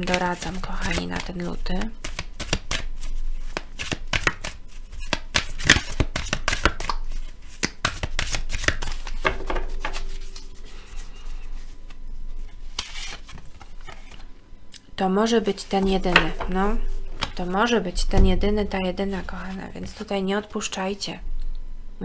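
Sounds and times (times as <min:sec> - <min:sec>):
cards being shuffled: 0:00.0 - 0:14.3.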